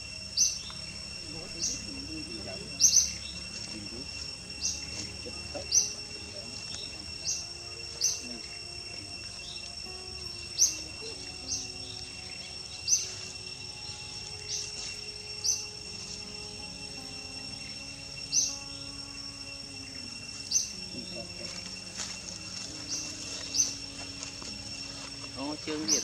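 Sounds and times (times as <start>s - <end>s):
insects trilling: 0.0s - 26.0s.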